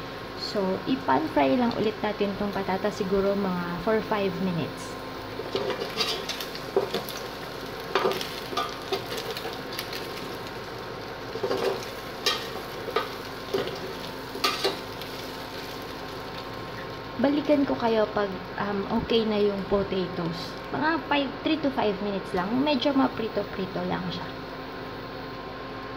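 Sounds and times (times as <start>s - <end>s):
potatoes sizzling in oil: 0.0s - 21.2s
metal spoon scraping a pot: 5.6s - 6.4s.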